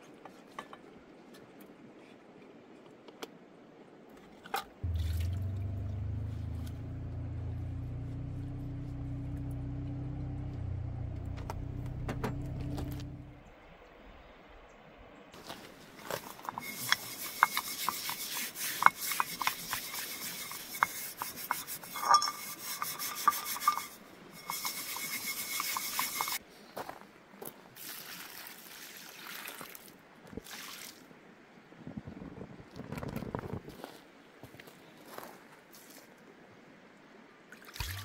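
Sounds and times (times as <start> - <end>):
scraping and rubbing: 15.4 - 26.4.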